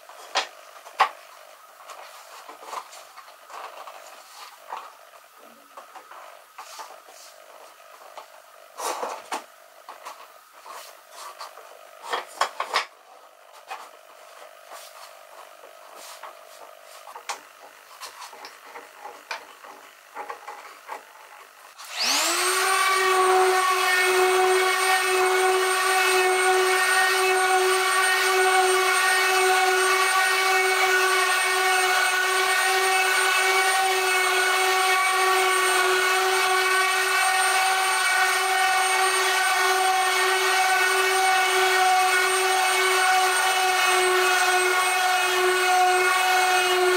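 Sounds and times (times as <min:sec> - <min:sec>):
orbital sander whining: 0:21.2 - 0:46.9.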